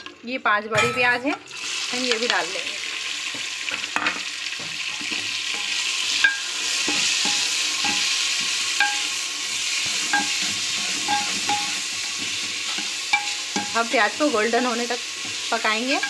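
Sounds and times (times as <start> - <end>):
onions sizzling in hot oil: 0.0 - 16.0
metal spoon scraping and clinking pot: 4.9 - 16.0.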